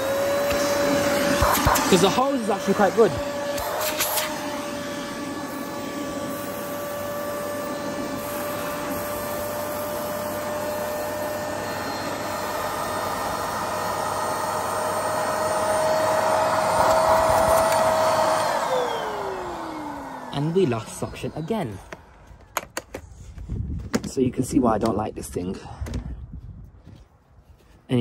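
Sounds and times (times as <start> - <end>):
nozzle sucking up sawdust: 0.0 - 22.0
handheld vacuum motor whining: 0.0 - 23.0.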